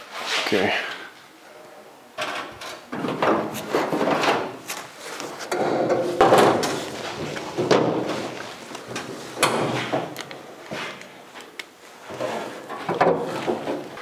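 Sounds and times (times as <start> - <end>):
sheet metal clunks and scrapes: 2.2 - 11.0, 12.1 - 14.0.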